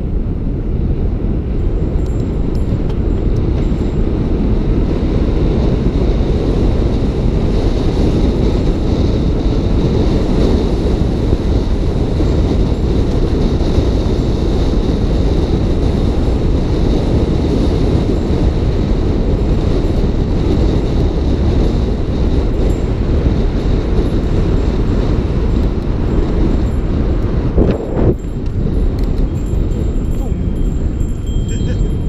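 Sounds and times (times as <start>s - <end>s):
bike tyre road rumble: 0.0s - 32.0s
wind rushing over microphone: 0.0s - 32.0s.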